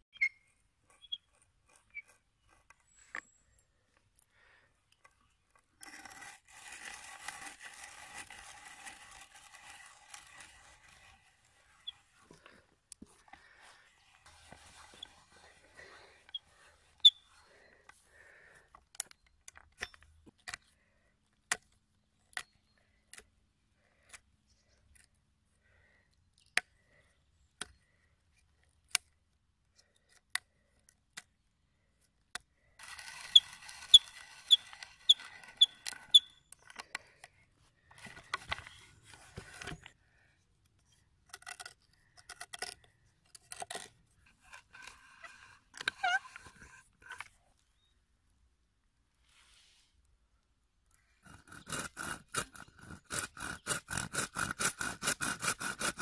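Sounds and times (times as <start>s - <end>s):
knife scraping wood: 0.1s - 20.8s, 32.3s - 40.0s, 40.8s - 47.4s, 51.0s - 56.0s.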